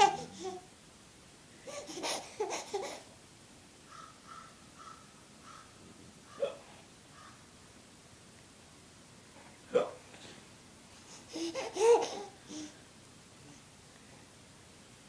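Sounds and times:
baby babbling and giggling: 0:00.0 - 0:00.7, 0:01.6 - 0:03.1, 0:11.1 - 0:12.8.

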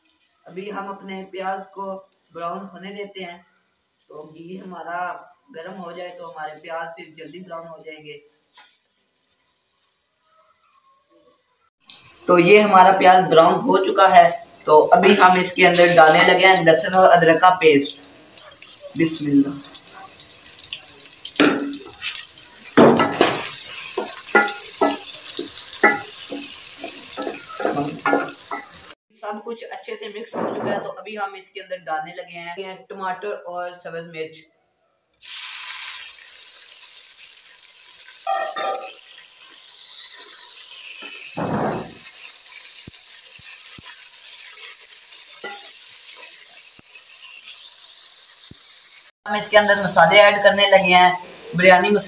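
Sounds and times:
onions sizzling in hot oil: 0:00.0 - 0:29.0, 0:35.2 - 0:52.0
wooden spoon scraping metal pot: 0:21.4 - 0:28.9, 0:45.4 - 0:46.4.

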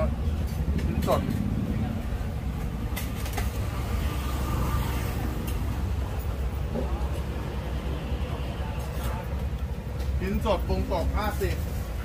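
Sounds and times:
low street rumble: 0:00.0 - 0:12.0.

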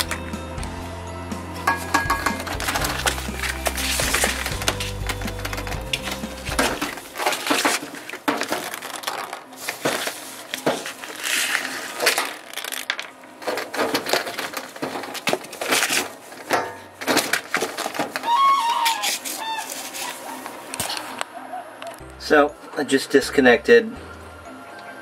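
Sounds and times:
drain hose crunching and rustling: 0:01.5 - 0:21.2.

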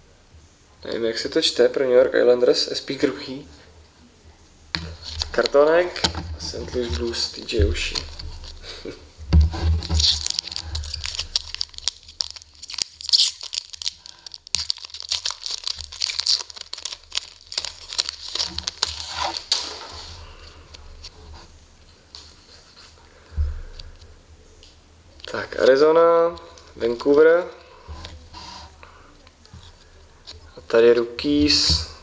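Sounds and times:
foil wrapper tearing and crinkling: 0:09.8 - 0:20.1.

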